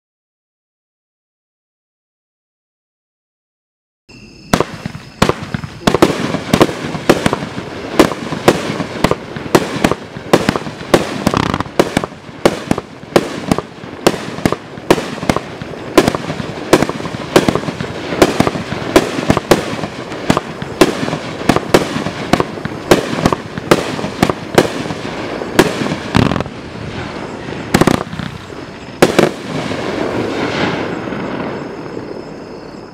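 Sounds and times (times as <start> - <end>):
firework bangs: 4.4 - 32.4.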